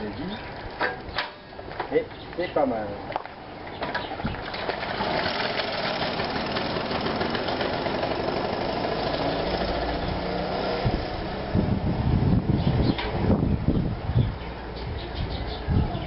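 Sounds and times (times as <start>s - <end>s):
moped engine passing: 4.0s - 13.7s.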